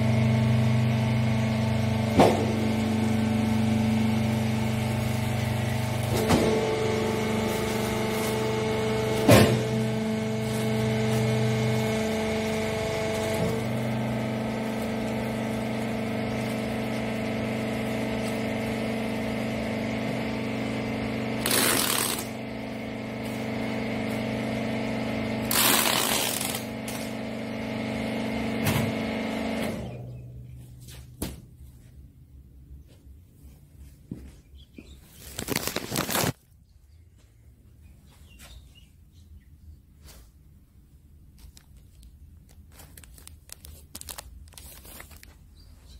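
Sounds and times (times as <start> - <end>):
hydraulic power unit humming: 0.0 - 41.4
packing tape pulled off roll: 21.4 - 22.4, 25.5 - 27.1, 35.2 - 36.4, 41.4 - 45.4.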